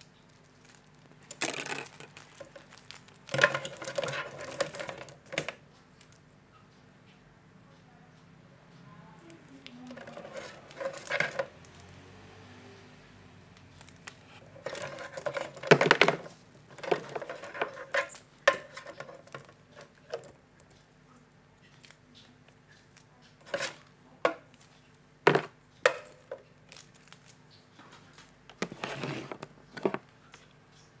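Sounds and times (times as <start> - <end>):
cables and plastic connectors rattling: 0.0 - 6.2, 9.3 - 12.0, 13.7 - 20.8.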